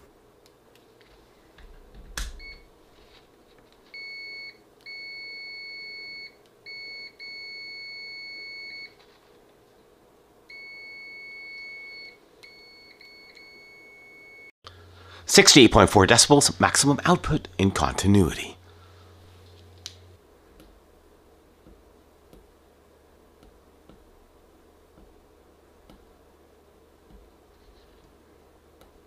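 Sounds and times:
multimeter continuity beeps: 4.0 - 9.0, 10.5 - 14.5.

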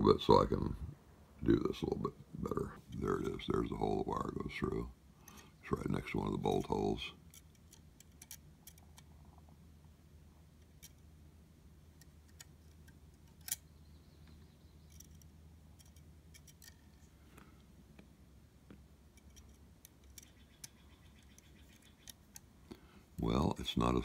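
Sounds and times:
low steady hum: 0.0 - 24.0
small metal parts clicking: 6.5 - 9.1, 10.6 - 11.0, 12.0 - 13.7, 14.8 - 17.1, 19.1 - 22.5.

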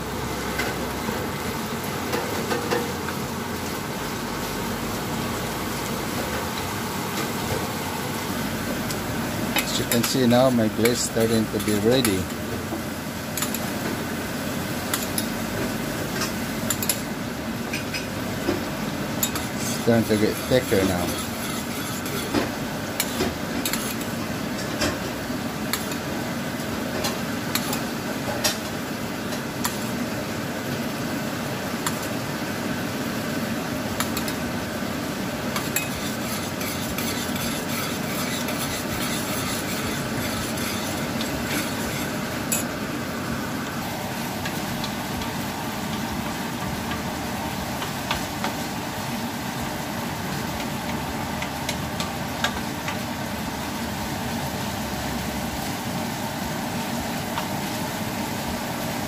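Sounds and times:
glaze boiling in saucepan: 0.0 - 59.0
bacon frying: 0.2 - 58.9
metal spoon clicking and scraping: 35.6 - 42.6.

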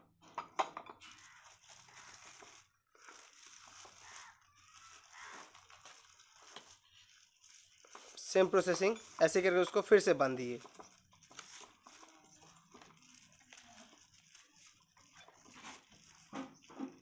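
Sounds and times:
plastic sheet crinkling: 1.0 - 17.0.

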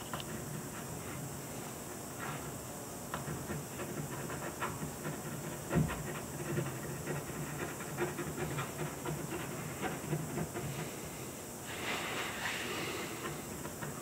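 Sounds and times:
ballpoint pen scratching on paper: 2.2 - 11.2, 12.8 - 14.0.

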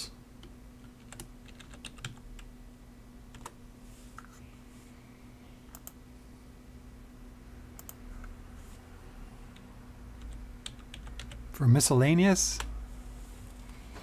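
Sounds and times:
faint steady hum: 0.0 - 14.0
keyboard keystrokes: 10.2 - 11.4.

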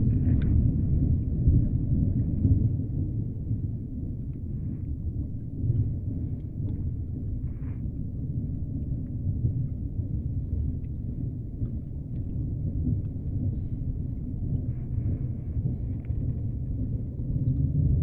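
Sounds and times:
faint clicks and ticks: 0.0 - 2.7, 4.0 - 18.0
underwater low rumble: 0.0 - 18.0.

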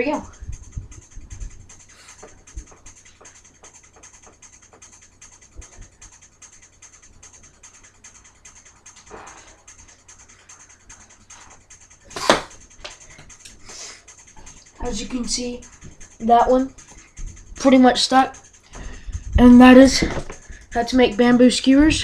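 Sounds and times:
blowgun puff: 7.2 - 14.1.

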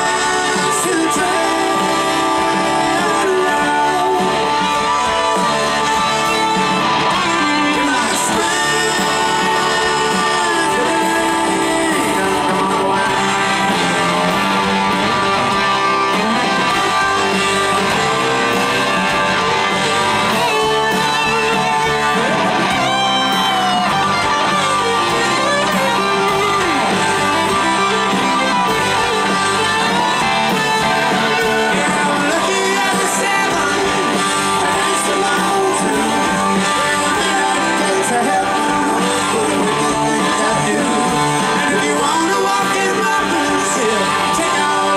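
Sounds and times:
bass: 0.0 - 44.9
drums: 0.0 - 44.9
electric guitar lead: 0.0 - 44.9
keyboards: 0.0 - 44.9.

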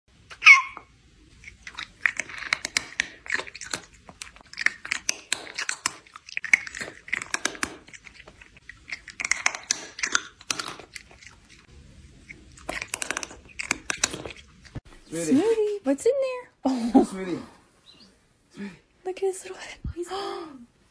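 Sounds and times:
cat chewing noisily: 1.2 - 14.8.

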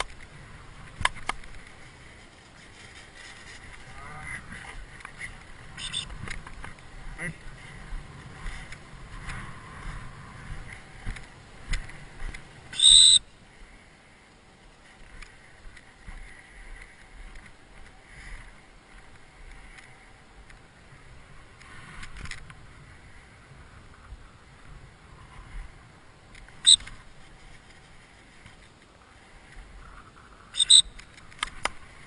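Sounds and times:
faint scuffs and rustles: 1.5 - 6.0
dog whistle blast: 12.8 - 13.2, 30.6 - 30.9.

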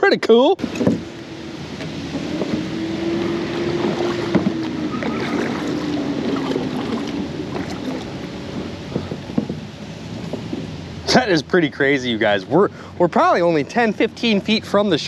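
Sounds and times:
river water: 0.0 - 15.0
wind noise: 0.6 - 12.9.

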